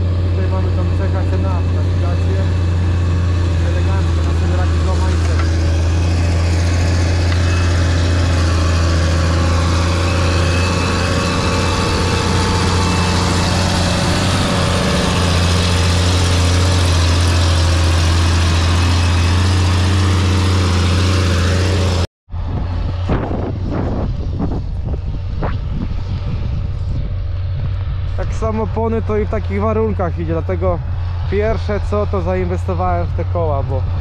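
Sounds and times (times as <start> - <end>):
tractor diesel engine droning: 0.0 - 34.0
wind buffeting microphone: 22.3 - 34.0.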